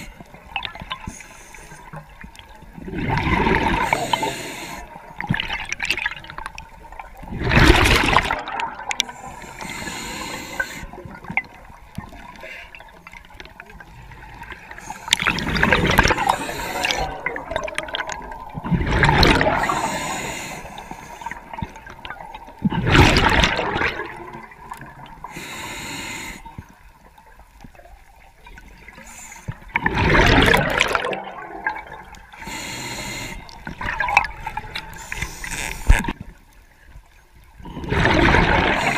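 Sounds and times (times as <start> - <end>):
exhaled bubbles gushing underwater: 2.0 - 25.3, 27.7 - 32.4, 33.4 - 35.0, 37.6 - 38.9.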